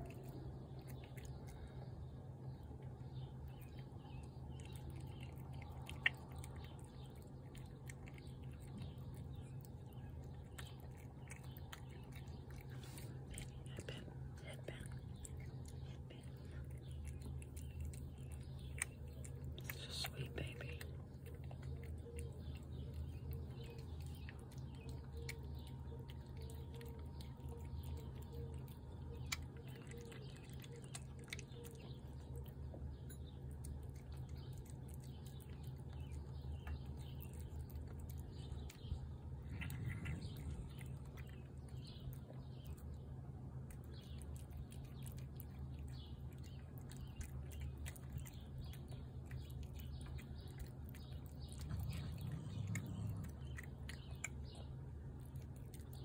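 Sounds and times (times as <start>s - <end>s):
birds chirping: 0.0s - 56.0s
cat chewing and lapping: 0.0s - 56.0s
low hum: 0.0s - 56.0s.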